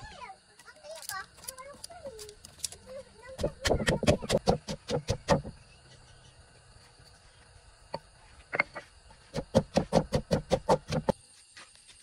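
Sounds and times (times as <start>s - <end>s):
wooden pestle pounding in mortar: 3.4s - 5.6s, 9.3s - 11.1s.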